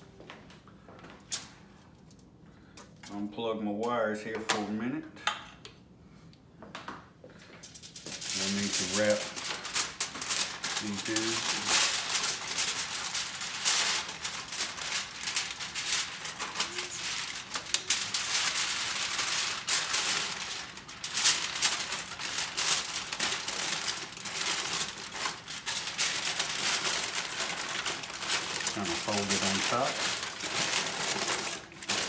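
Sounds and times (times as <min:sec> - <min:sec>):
aluminium foil crinkling: 0:07.6 - 0:32.0.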